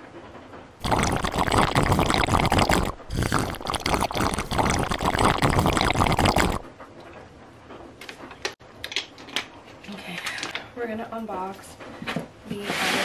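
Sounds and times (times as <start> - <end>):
water gurgling in plastic bottle: 0.8 - 6.6.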